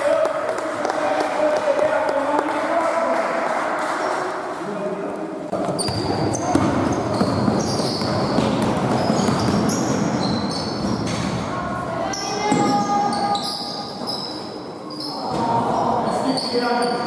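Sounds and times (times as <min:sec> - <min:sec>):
basketball bouncing on court: 0:05.5 - 0:11.4
short high shoe squeaks: 0:05.7 - 0:08.3, 0:09.0 - 0:11.2, 0:12.2 - 0:15.3
players' voices: 0:11.1 - 0:17.0.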